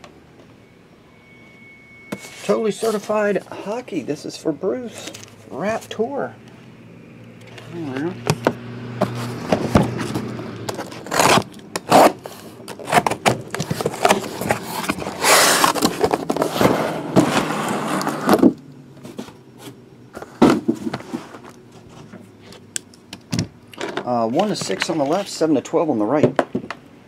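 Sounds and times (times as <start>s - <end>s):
cardboard scraping: 2.1s - 3.5s, 7.5s - 22.6s
cardboard rustling: 9.0s - 22.2s
boxes knocking: 20.3s - 21.1s.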